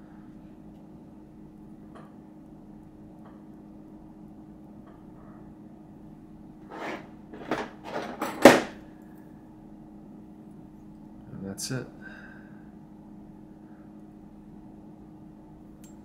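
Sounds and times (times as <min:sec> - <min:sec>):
faint steady hum: 0:00.0 - 0:16.0
rustling scrapes of tools: 0:06.6 - 0:08.4.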